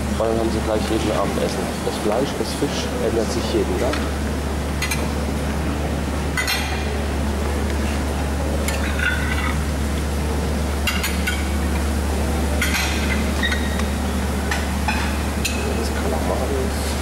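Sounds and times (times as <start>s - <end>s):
dishes and cutlery clinking: 6.4s - 6.9s, 8.6s - 9.6s, 10.8s - 11.5s, 12.6s - 13.7s.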